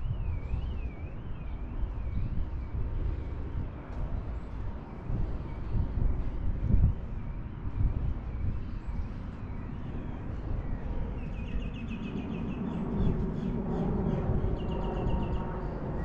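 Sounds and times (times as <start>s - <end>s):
wind rumble on microphone: 0.0s - 16.0s
bird chirping: 8.4s - 15.6s.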